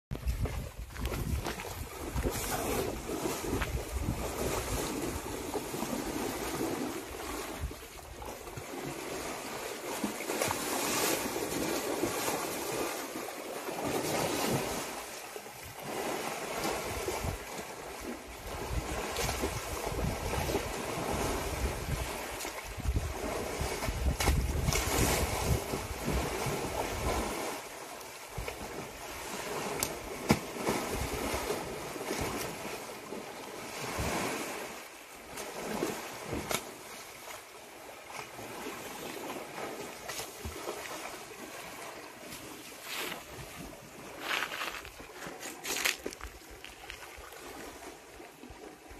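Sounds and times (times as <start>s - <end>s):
wind buffeting microphone: 0.1s - 8.3s, 18.3s - 27.4s
elephant splashing in water: 0.2s - 48.6s.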